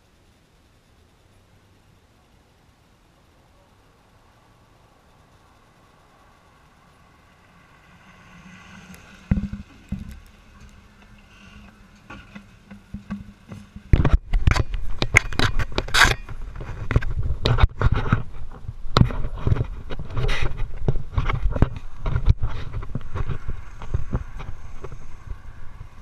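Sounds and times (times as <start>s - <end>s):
faint steady hum: 0.0s - 26.0s
fabric rubbing on microphone: 13.6s - 26.0s.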